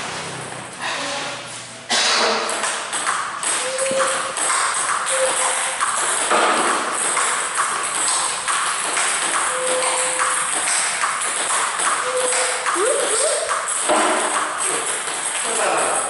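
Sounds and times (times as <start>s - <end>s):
table tennis ball clicking off paddles: 2.4s - 16.0s
ball bouncing on table: 2.5s - 15.3s.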